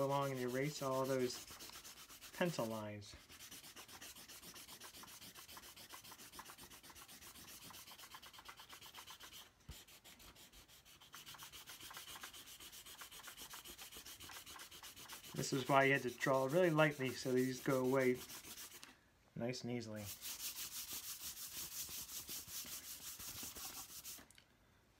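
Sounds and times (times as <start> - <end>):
eraser rubbing on paper: 0.0 - 18.8, 20.0 - 24.2.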